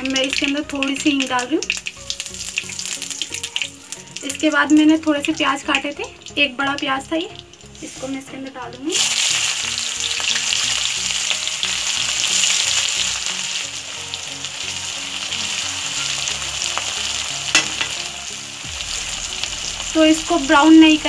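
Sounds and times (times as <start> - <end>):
onion sizzling in hot oil: 0.0 - 21.0
sharp knock: 17.6 - 18.0.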